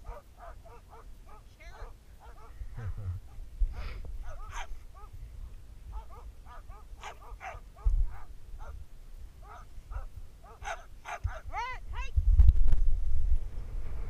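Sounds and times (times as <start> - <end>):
sled dogs yipping and barking: 0.0 - 8.8, 9.4 - 11.7.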